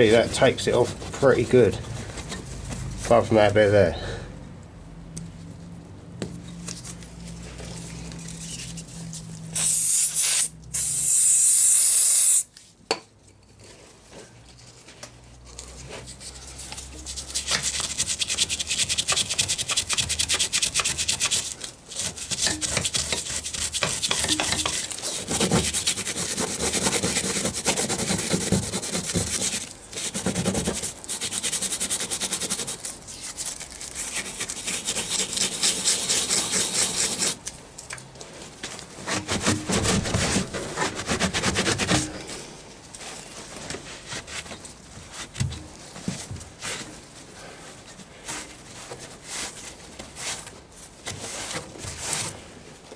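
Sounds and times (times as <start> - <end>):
loud hissing bursts: 9.6 - 12.5
paintbrush scrubbing: 16.1 - 37.4.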